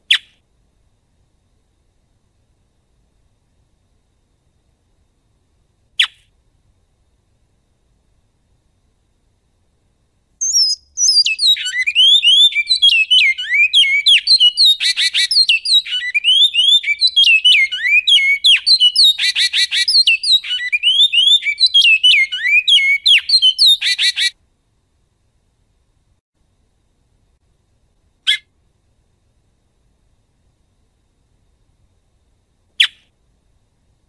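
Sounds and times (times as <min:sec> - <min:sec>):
finch singing: 0:10.4 - 0:24.3.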